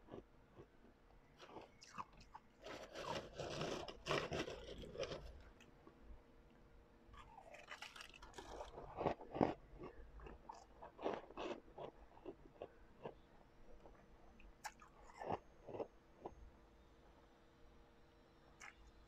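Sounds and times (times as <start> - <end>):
person crunching ice: 2.6 - 5.4, 7.2 - 11.9.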